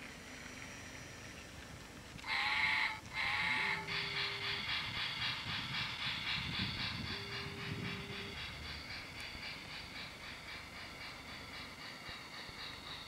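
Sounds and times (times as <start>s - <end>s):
toy steam locomotive chuffing: 0.0s - 13.0s.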